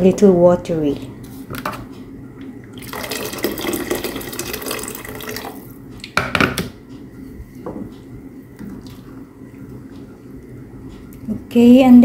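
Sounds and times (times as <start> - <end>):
water pouring into a metal pot: 2.8 - 5.6.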